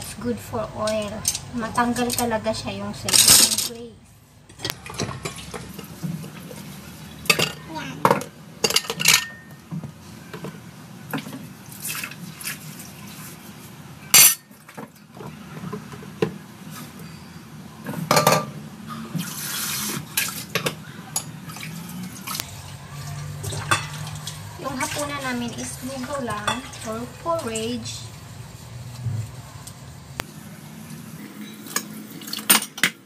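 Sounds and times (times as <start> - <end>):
dishes clinking and clattering: 4.5 - 12.0, 14.1 - 16.4, 17.0 - 19.3, 19.9 - 26.9, 31.4 - 33.0
water splashing: 19.1 - 27.7.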